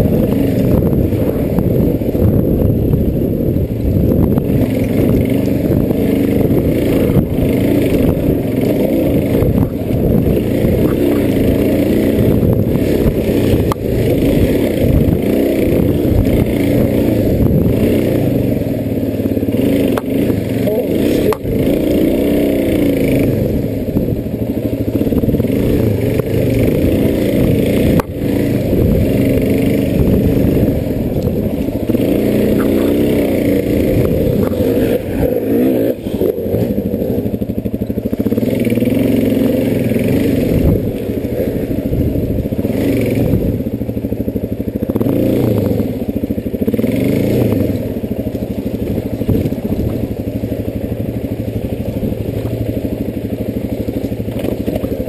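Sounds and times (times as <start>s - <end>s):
dirt bike engine revving: 0.0s - 55.0s
knocks over rough ground: 49.2s - 50.1s.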